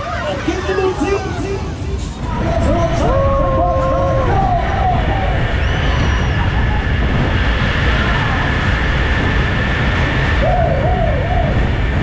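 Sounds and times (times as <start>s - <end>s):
people whooping: 0.0s - 7.1s, 10.4s - 11.8s
roller coaster rumble: 0.0s - 12.0s.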